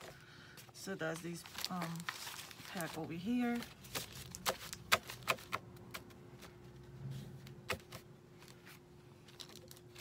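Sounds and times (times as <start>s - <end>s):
paper rustling: 1.1s - 5.2s.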